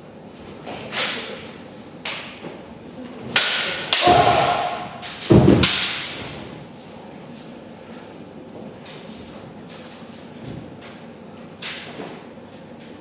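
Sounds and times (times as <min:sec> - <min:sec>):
bamboo swords clacking: 0:03.3 - 0:06.2
people shouting: 0:04.0 - 0:05.0.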